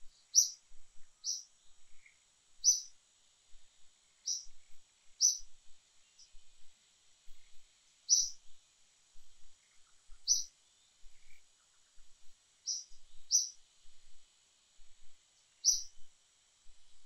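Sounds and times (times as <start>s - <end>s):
bird chirping: 0.0s - 3.0s, 4.2s - 6.4s, 7.3s - 8.6s, 9.4s - 13.6s, 15.6s - 16.1s
faint high-pitched whine: 0.0s - 17.0s.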